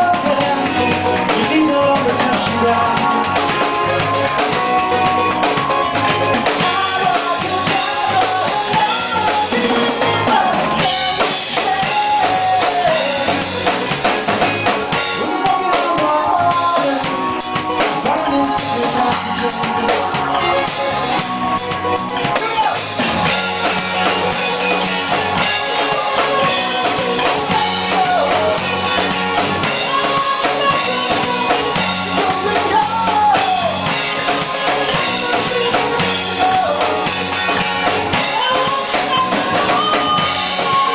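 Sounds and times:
drum kit steady beat: 0.0 - 40.9
live band playing: 0.0 - 40.9
pitch-bending melodic lead: 0.0 - 40.9.

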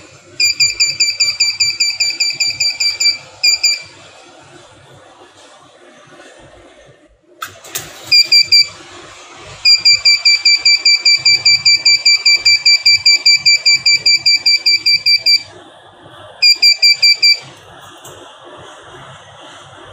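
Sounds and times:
high buzzer beeping rapidly: 0.4 - 3.9, 8.1 - 8.7, 9.7 - 15.5, 16.4 - 17.4.

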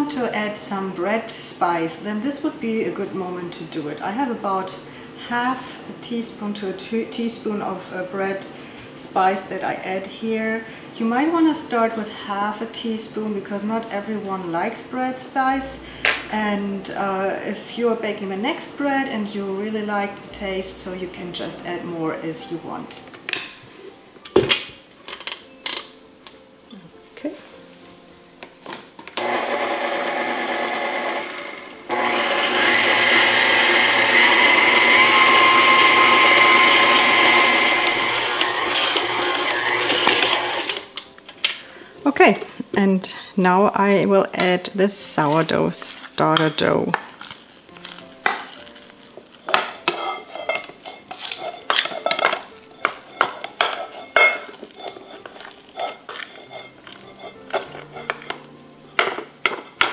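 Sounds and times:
stand mixer kneading dough: 29.2 - 40.8
spoon scraping metal bowl: 35.2 - 40.9, 47.7 - 59.9.

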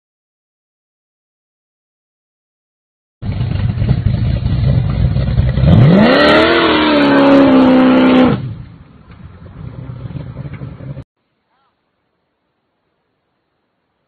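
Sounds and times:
car engine revving: 3.2 - 11.0.

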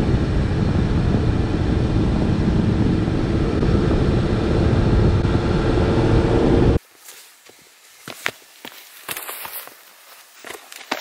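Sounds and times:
vehicle road and wind rumble: 0.0 - 6.9.

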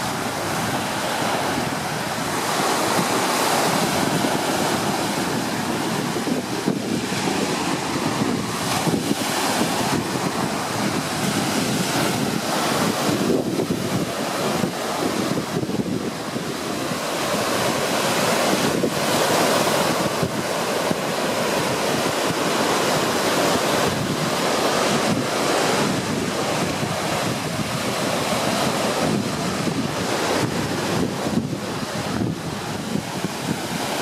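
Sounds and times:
waves washing onto pebbly shore: 0.0 - 34.0
wind buffeting microphone: 0.0 - 34.0.

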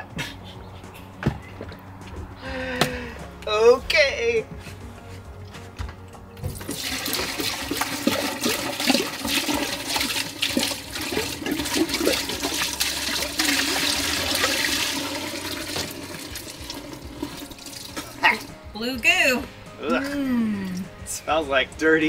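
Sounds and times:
waste pouring into drain: 6.6 - 18.2.

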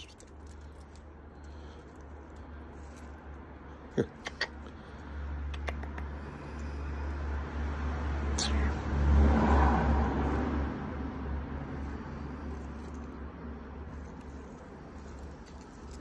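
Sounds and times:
motor vehicle passing by: 4.6 - 16.0.

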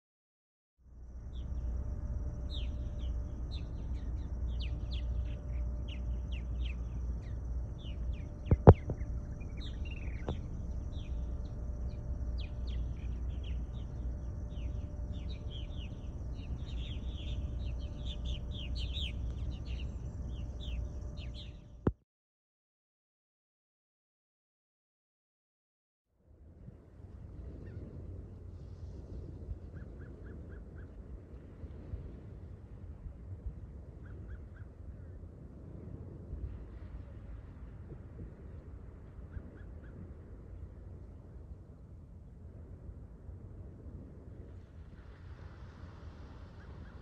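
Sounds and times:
steady low rumble: 0.8 - 22.0, 26.3 - 47.0
small birds chirping: 1.2 - 21.8.

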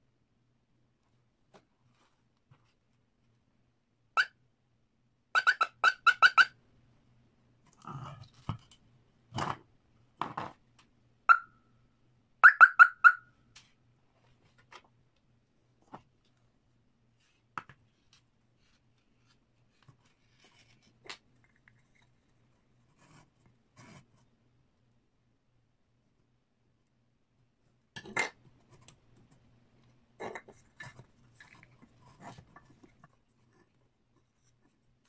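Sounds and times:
electronic siren horn chirps: 12.4 - 13.3.

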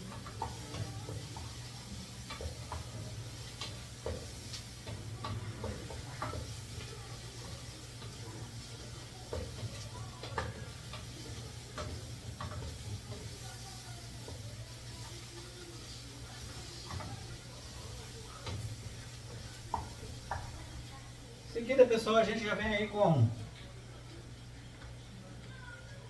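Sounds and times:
onion and garlic sizzling: 0.0 - 24.5.

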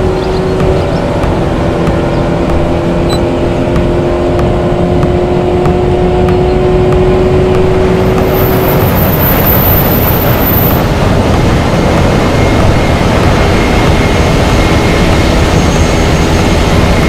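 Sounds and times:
car engine drone: 0.0 - 17.0
loud rushing wind: 7.7 - 17.0.

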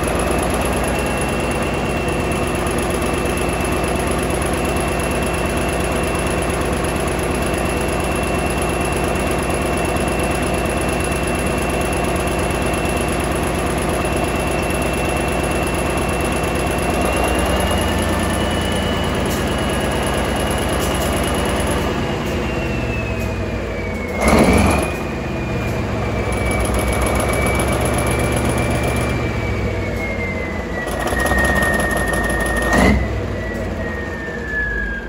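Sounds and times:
diesel engine running: 0.0 - 35.0.

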